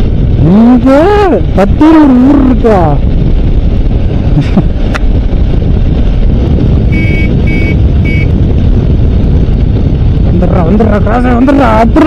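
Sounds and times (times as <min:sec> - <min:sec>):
motorcycle engine rumble: 0:00.0 - 0:12.0
wind rush on microphone: 0:00.0 - 0:12.0
horn beeps: 0:06.9 - 0:08.4.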